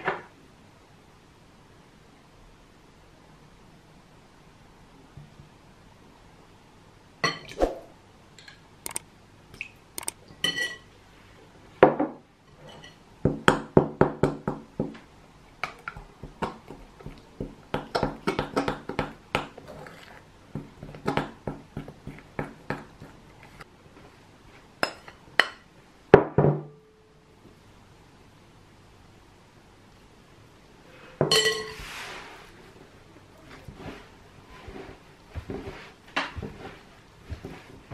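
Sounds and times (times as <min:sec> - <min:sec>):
spoon scraping glass bowl: 0:19.6 - 0:20.2, 0:33.5 - 0:37.9.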